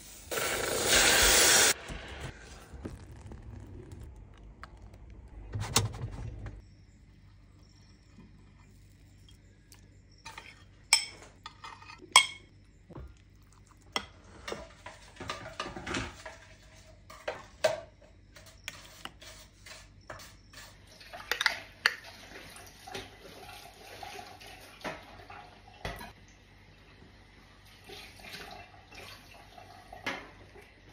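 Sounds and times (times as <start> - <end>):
metal spoon clinking on dishes: 10.3 - 12.5.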